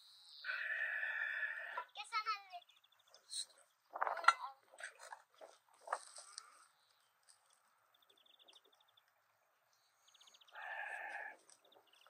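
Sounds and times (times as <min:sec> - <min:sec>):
farm animal bleat: 0:00.4 - 0:01.9, 0:10.5 - 0:11.5.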